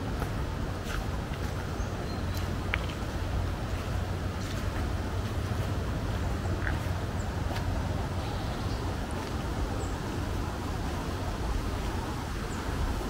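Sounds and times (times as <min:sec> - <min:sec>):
soft footsteps on path: 0:00.0 - 0:11.0
low outdoor rumble: 0:00.0 - 0:13.0
small birds chirping: 0:01.4 - 0:10.1.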